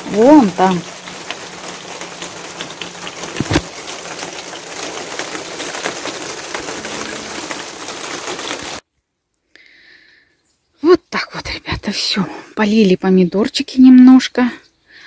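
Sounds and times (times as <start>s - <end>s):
water pattering on leaves: 0.0s - 8.8s.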